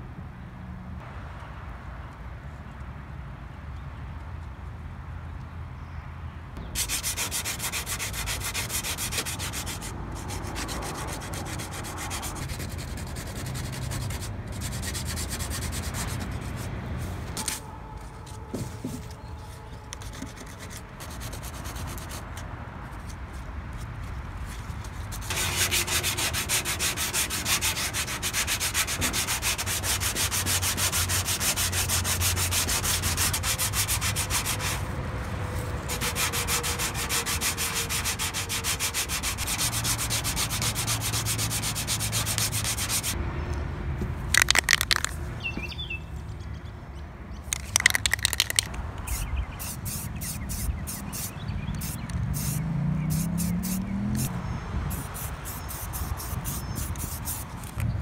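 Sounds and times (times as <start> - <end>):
sandpaper scraping on car body: 6.7 - 23.2, 23.8 - 43.2, 44.4 - 45.1, 47.5 - 54.3, 54.9 - 57.8
quick ticks: 44.3 - 45.2, 47.5 - 49.2.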